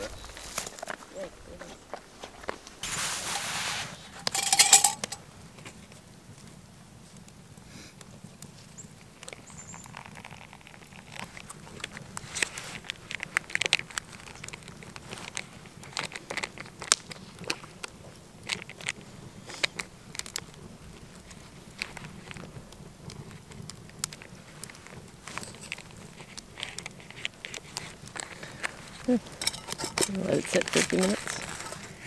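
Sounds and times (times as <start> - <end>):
spoon scraping and clicking: 4.2 - 5.2, 29.3 - 31.9.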